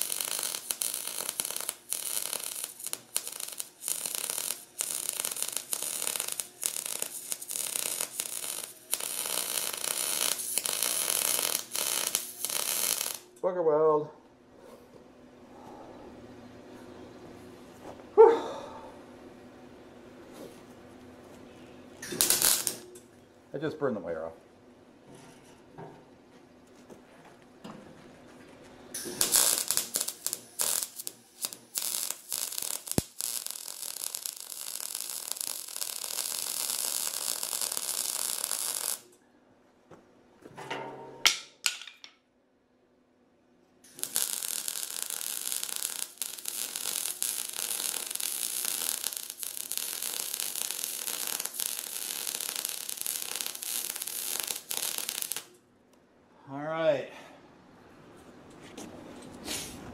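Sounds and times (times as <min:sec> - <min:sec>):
welder crackling sizzle: 0:00.0 - 0:13.5, 0:22.0 - 0:23.0, 0:28.9 - 0:39.2, 0:43.8 - 0:55.6.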